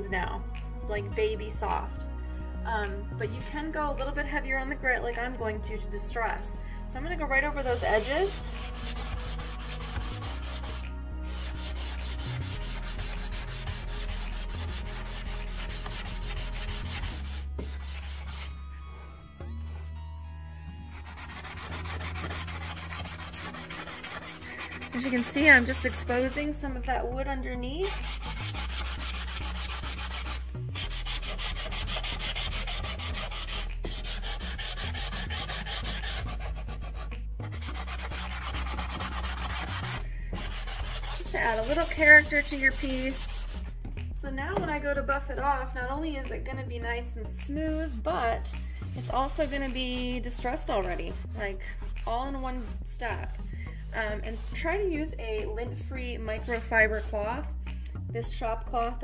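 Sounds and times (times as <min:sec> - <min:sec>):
sanding block rubbing wood: 0:07.8 - 0:19.1, 0:20.9 - 0:26.5, 0:27.8 - 0:43.7, 0:49.1 - 0:51.1, 0:54.1 - 0:54.8.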